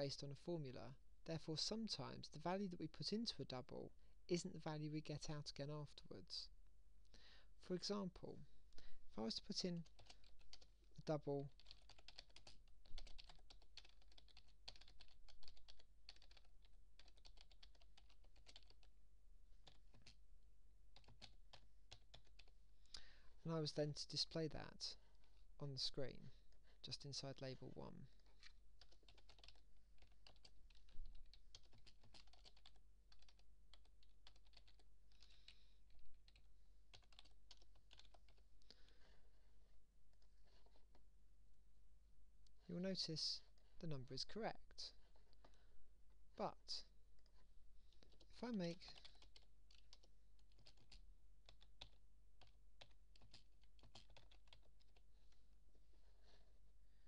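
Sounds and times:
keyboard typing: 0:09.2 - 0:10.8, 0:11.4 - 0:18.9, 0:19.6 - 0:20.2, 0:20.9 - 0:22.6, 0:28.2 - 0:39.1, 0:47.2 - 0:55.4.

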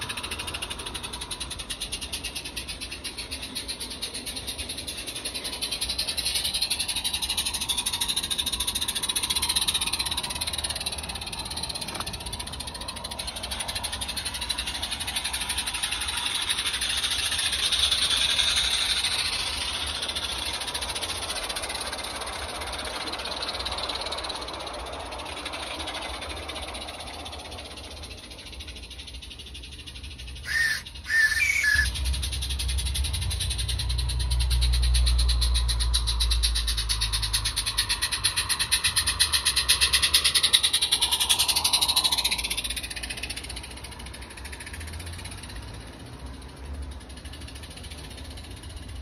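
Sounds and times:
steam hiss: 0:00.0 - 0:31.9, 0:33.2 - 0:49.0
steam locomotive exhaust beats: 0:00.0 - 0:49.0.

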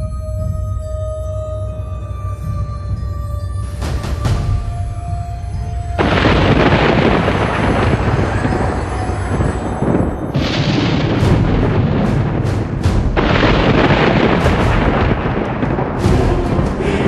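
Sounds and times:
sharp thunder crack with hiss: 0:06.0 - 0:17.0
thunder crash rumbling: 0:06.0 - 0:17.0.

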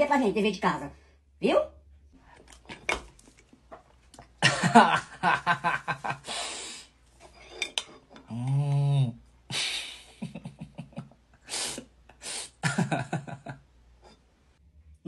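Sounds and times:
short breathy hiss: 0:06.2 - 0:07.0, 0:09.5 - 0:10.1, 0:11.4 - 0:12.6.

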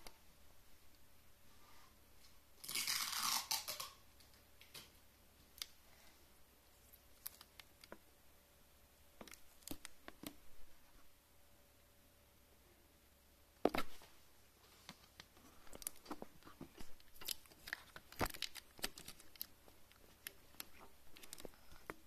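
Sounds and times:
dry crackling and rustling bedding: 0:13.6 - 0:22.0.

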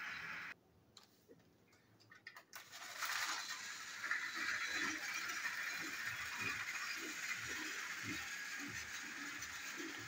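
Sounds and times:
toy train motors whining: 0:02.6 - 0:10.0.

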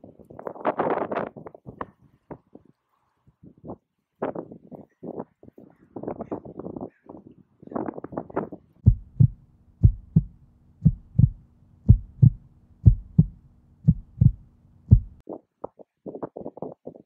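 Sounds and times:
faint steady hum: 0:08.8 - 0:15.2
heartbeat double thumps: 0:08.8 - 0:15.2.

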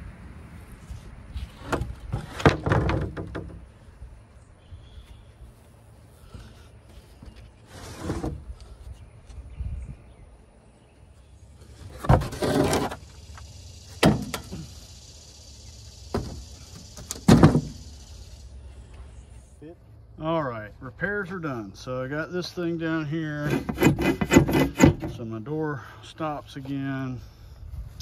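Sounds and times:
scraping wooden thud: 0:01.4 - 0:03.7, 0:06.3 - 0:08.8, 0:11.7 - 0:13.1, 0:14.0 - 0:14.7, 0:16.1 - 0:17.9, 0:23.4 - 0:25.2
wooden boards knocking: 0:01.7 - 0:03.7.

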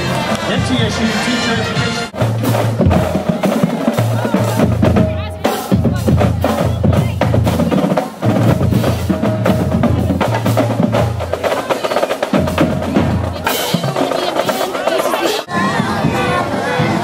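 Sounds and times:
marching bass drums: 0:00.0 - 0:17.0
snare drums rattling: 0:02.2 - 0:15.5.

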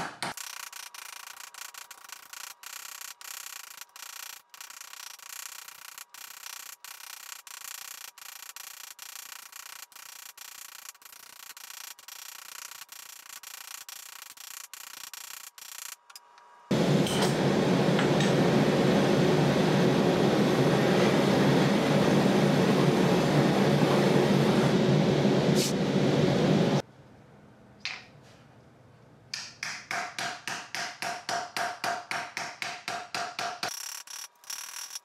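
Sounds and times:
gas torch hissing: 0:16.7 - 0:26.8.

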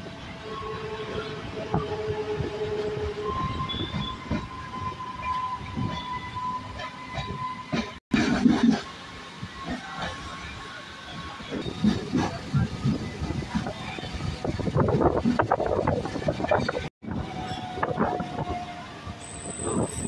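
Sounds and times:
low train rumble: 0:00.0 - 0:20.0
electric train whine: 0:17.1 - 0:20.0.

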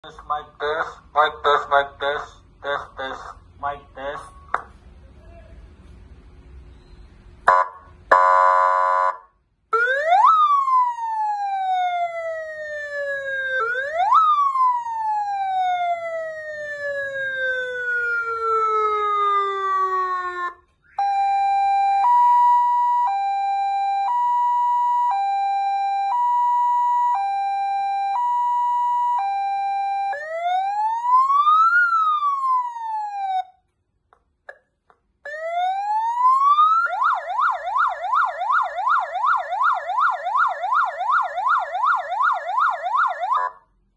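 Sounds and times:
buzzy horn blasts: 0:07.5 - 0:09.3
electronic siren wailing: 0:09.8 - 0:33.6, 0:35.3 - 0:43.6.

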